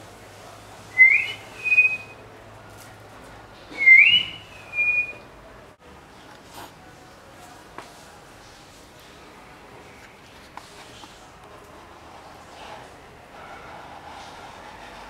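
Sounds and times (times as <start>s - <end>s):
person whistling: 1.0s - 2.1s, 3.8s - 5.2s.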